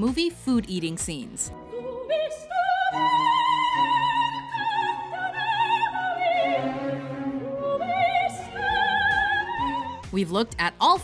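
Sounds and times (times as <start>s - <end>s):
orchestral accompaniment: 1.5s - 10.4s
operatic singing: 1.6s - 10.2s.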